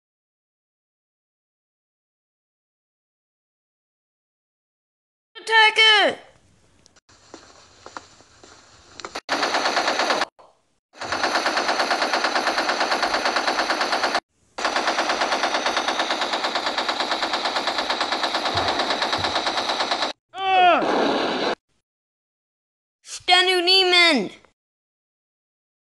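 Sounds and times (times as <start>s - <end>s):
machine-gun fire: 9.3s - 10.3s, 11.0s - 20.2s.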